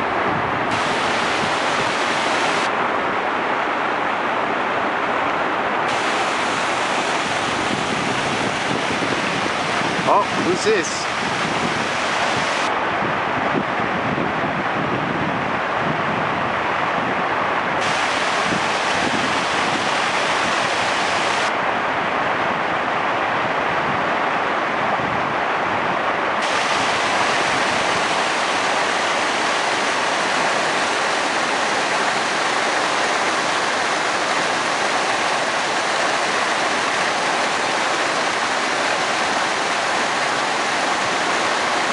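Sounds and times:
rush of moving water: 0.0s - 41.9s.

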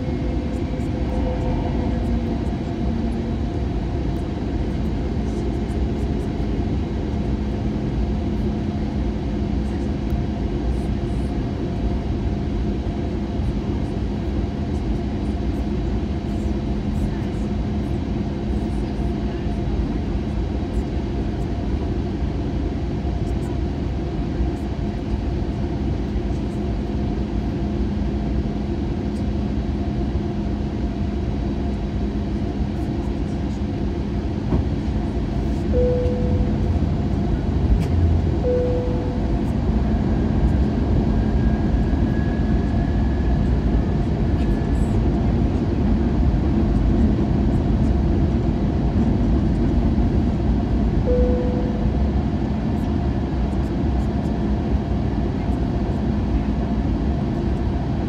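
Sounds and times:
airplane cabin rumble: 0.0s - 58.0s
brief tones: 35.7s - 36.8s, 38.4s - 39.4s, 51.1s - 52.0s.

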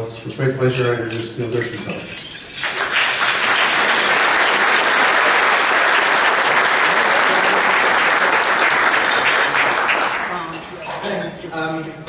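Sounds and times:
audience applauding: 2.6s - 10.7s.

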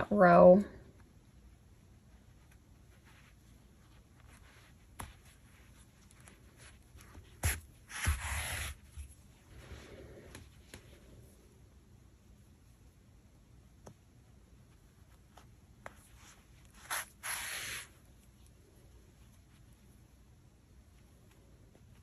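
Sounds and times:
yarn rubbing and rustling: 1.3s - 11.4s, 14.6s - 22.0s.

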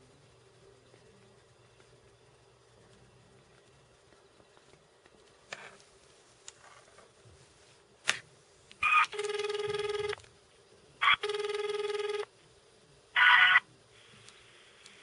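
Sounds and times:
telephone ringback tone: 8.8s - 10.2s, 11.0s - 12.3s.

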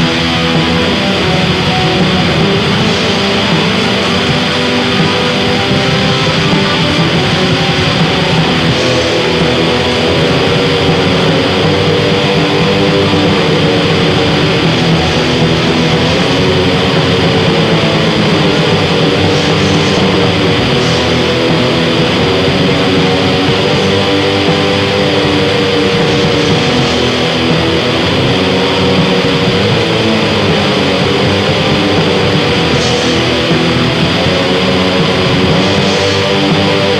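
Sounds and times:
distorted guitar: 0.0s - 36.9s
drums: 0.0s - 36.9s.

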